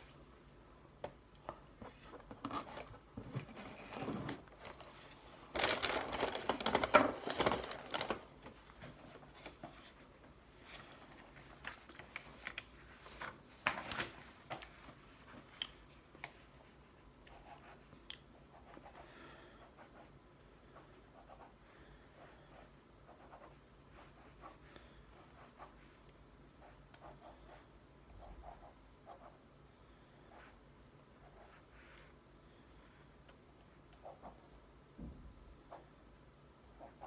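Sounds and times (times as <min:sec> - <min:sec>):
paper packaging crinkling: 0:04.4 - 0:08.6.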